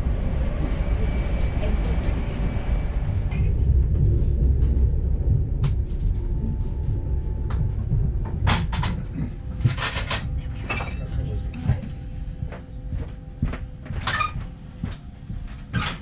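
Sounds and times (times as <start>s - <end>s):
train low rumble: 0.0s - 16.0s.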